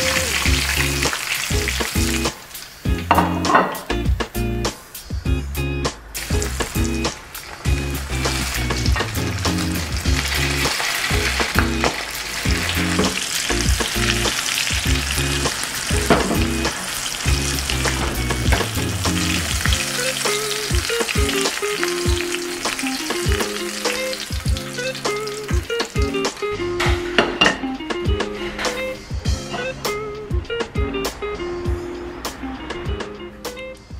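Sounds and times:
food deep-frying in oil: 0.0 - 5.2, 6.1 - 26.6.

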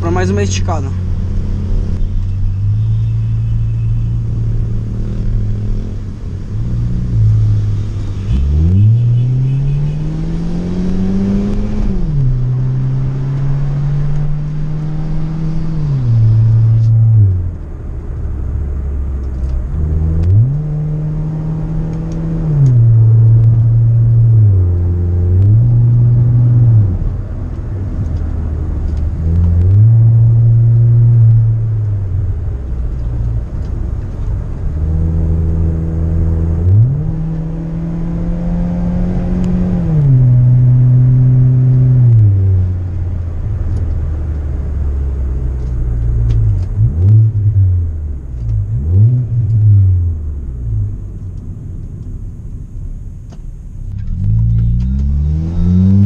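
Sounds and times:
car engine revving hard: 6.8 - 17.2, 54.1 - 56.0.

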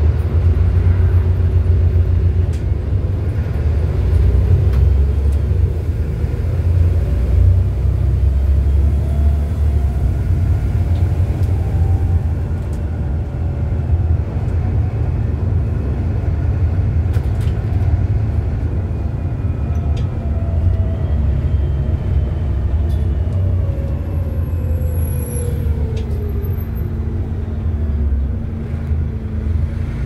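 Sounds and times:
bus engine rumble and whine: 0.0 - 30.0
light rattles from bus body: 14.4 - 20.2.

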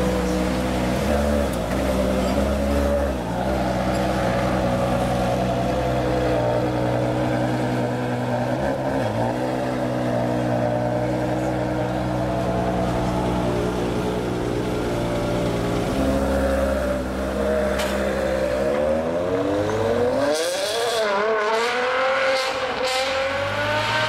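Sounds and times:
car engine idling: 0.0 - 18.9.

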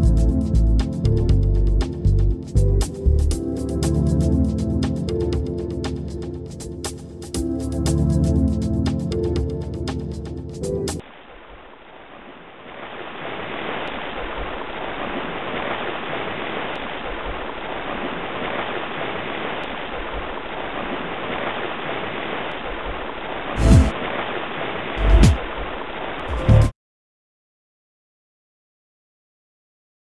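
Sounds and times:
television static hiss: 11.0 - 26.6.

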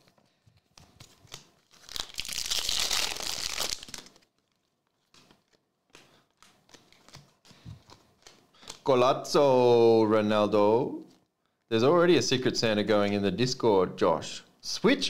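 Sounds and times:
cards being handled: 0.0 - 8.9
card pack wrapper tearing: 0.9 - 5.6.

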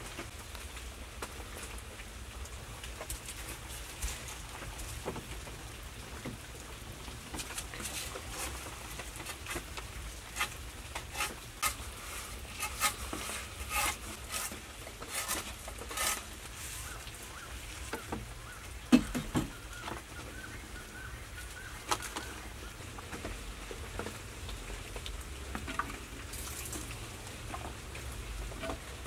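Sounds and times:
dry plant pieces crackling: 0.0 - 29.0
bird chirping softly: 16.6 - 22.8.

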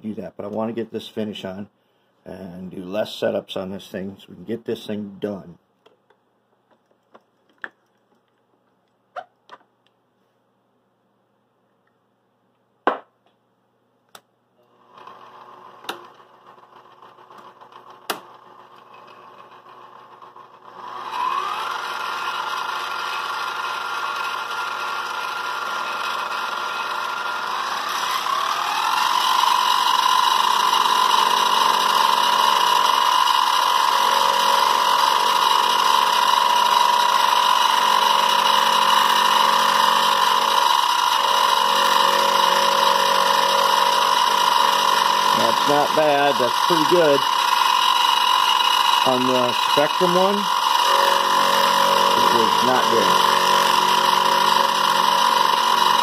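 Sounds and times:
milling machine motor whine: 14.7 - 56.0.

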